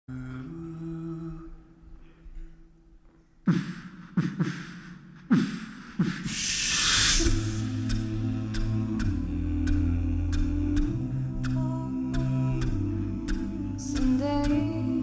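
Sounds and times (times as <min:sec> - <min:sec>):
hummed vocal chord: 0:00.1 - 0:01.8, 0:06.3 - 0:15.0
beatbox kick-drum thumps: 0:03.5 - 0:14.8
hissing swell: 0:06.2 - 0:09.5.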